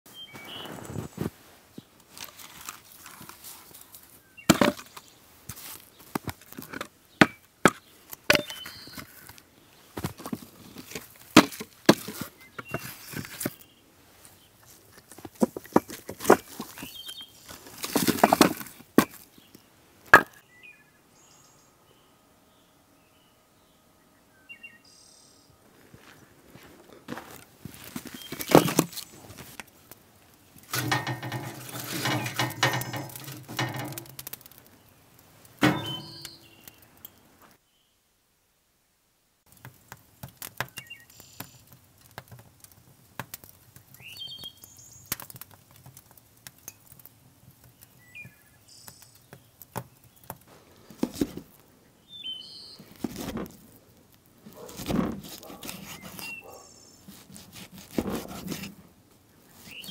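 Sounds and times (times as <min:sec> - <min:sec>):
bird chirps: 0:08.4 - 0:09.1, 0:16.8 - 0:17.5, 0:20.4 - 0:25.6, 0:35.6 - 0:37.0, 0:40.7 - 0:41.6, 0:44.0 - 0:45.1, 0:47.8 - 0:50.2, 0:51.9 - 0:52.9, 0:55.8 - 0:57.0, 0:59.4 - 0:59.9
knocks and clatter: 0:30.7 - 0:34.6, 0:35.6 - 0:36.4.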